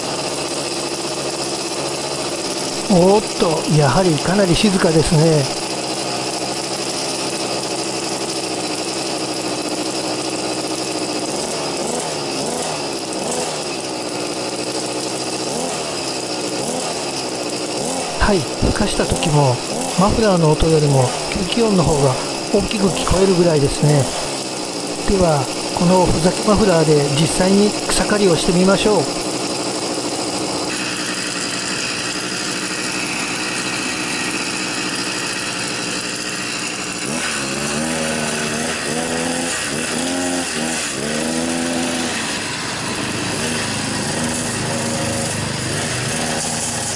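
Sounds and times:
small engine running and revving: 0:00.0 - 0:46.9
engine intake noise: 0:02.6 - 0:05.9, 0:18.0 - 0:46.9.

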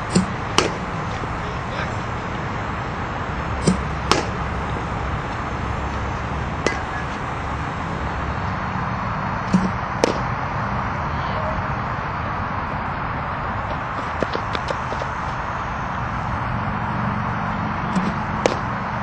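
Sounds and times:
pitching machine thump: 0:00.0 - 0:00.9, 0:03.6 - 0:04.4, 0:09.5 - 0:10.3
outdoor background noise: 0:00.0 - 0:19.0
bat pinging on ball: 0:00.1 - 0:01.2, 0:03.6 - 0:04.4, 0:06.6 - 0:07.2.

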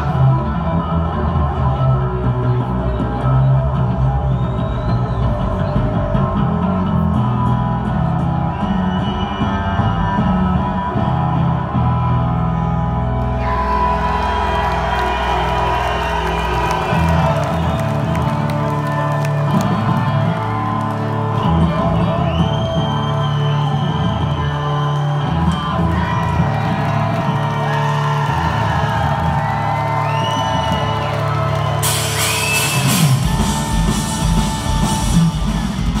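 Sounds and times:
electric bass solo: 0:00.0 - 0:27.6
crowd whooping: 0:00.0 - 0:36.0
drums and crashing cymbals: 0:21.7 - 0:36.0.

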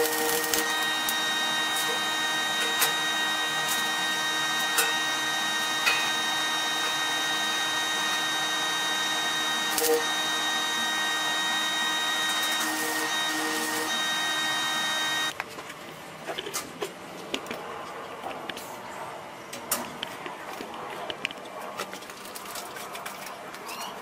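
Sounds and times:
sharp welding cracks: 0:00.0 - 0:02.0, 0:09.7 - 0:10.2, 0:12.2 - 0:13.9
electric arc welding hiss: 0:00.0 - 0:15.3
high even whine: 0:00.0 - 0:15.3.

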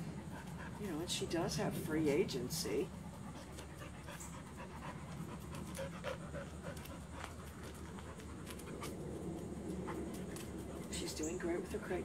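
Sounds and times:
dog panting: 0:00.0 - 0:12.0.

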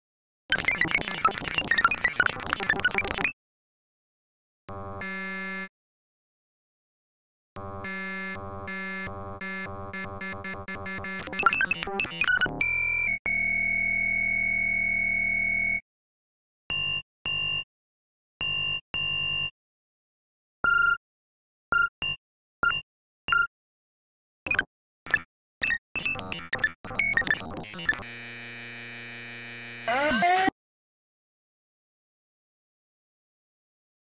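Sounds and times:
held buzzy synth tone: 0:28.1 - 0:30.5.

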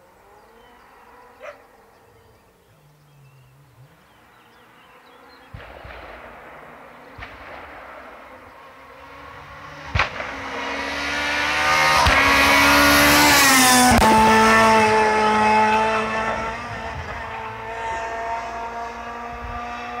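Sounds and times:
rally car passing at speed: 0:00.2 - 0:02.1, 0:06.2 - 0:20.0.

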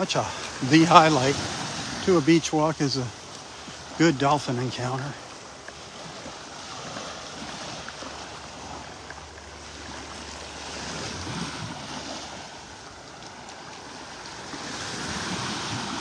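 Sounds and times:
small waves washing on shore: 0:00.0 - 0:16.0.

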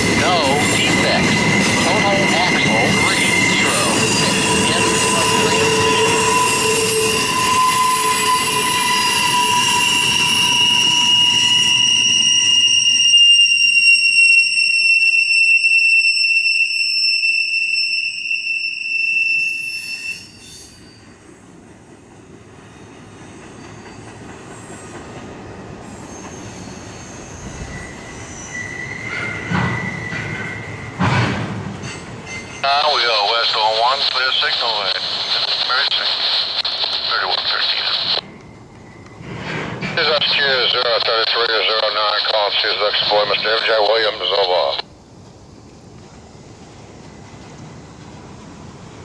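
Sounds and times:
rumble of rolling train cars: 0:00.0 - 0:49.0
train wheels squealing: 0:00.2 - 0:21.6, 0:22.2 - 0:31.1, 0:31.8 - 0:33.4, 0:38.2 - 0:41.5
train car knocks: 0:31.0 - 0:32.0.

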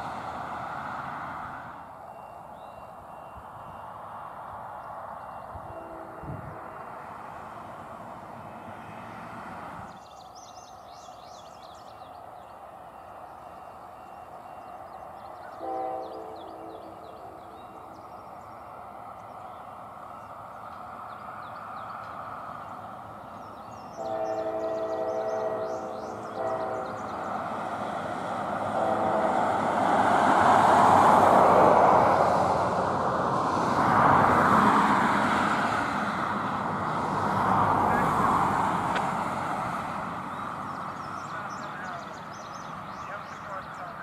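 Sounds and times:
train rumble: 0:00.0 - 0:44.0
train horn blasts: 0:05.5 - 0:06.8, 0:15.4 - 0:17.9, 0:23.9 - 0:27.4, 0:28.6 - 0:29.8.

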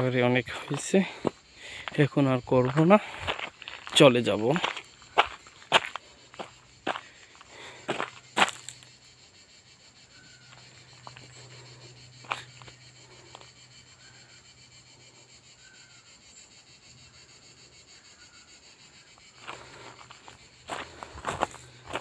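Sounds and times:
footsteps on gravel: 0:00.0 - 0:08.9, 0:10.5 - 0:13.5, 0:19.4 - 0:22.0
faint insect drone: 0:00.0 - 0:22.0.

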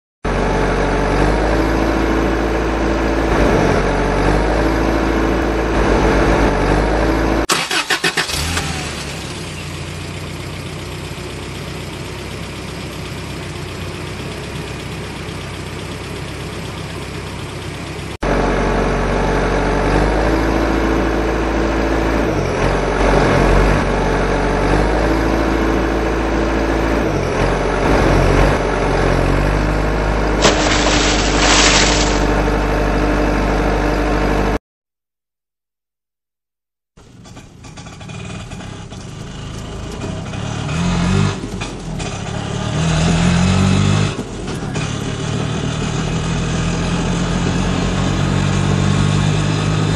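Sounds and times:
engine running and revving: 0:00.2 - 0:34.6, 0:37.0 - 0:49.9
quieter steady engine: 0:00.3 - 0:34.6.

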